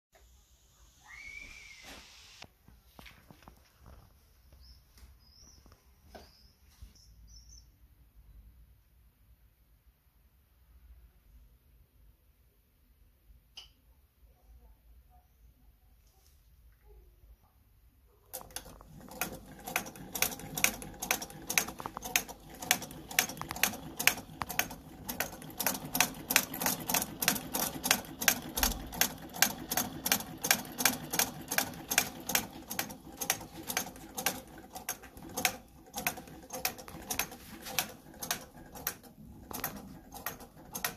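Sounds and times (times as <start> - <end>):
sewing machine stitching: 18.2 - 40.9.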